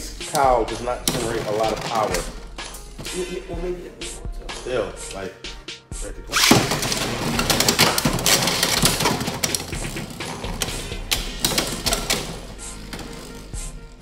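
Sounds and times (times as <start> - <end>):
rapid clicking rattle: 6.4 - 13.6.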